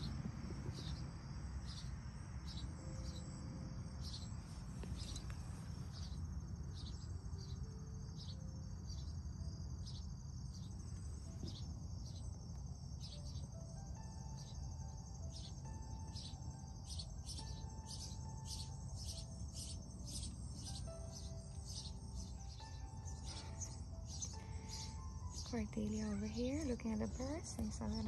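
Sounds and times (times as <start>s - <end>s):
low rumble: 0.0s - 13.0s
crickets chirping: 0.0s - 28.0s.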